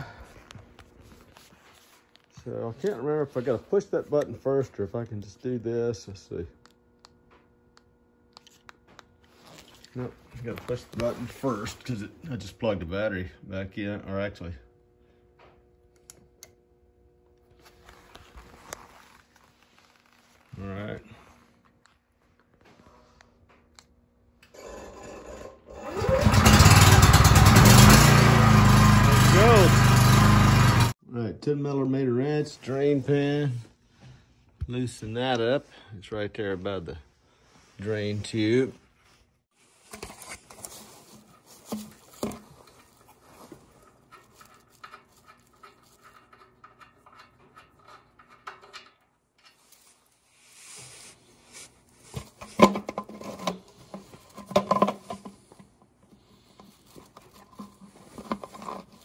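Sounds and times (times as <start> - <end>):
generator engine cranking and running: 24.4 - 31.0, 41.2 - 49.7.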